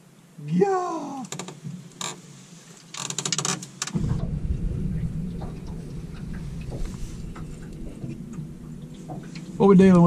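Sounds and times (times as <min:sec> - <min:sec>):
wind buffeting microphone: 0:04.0 - 0:10.0.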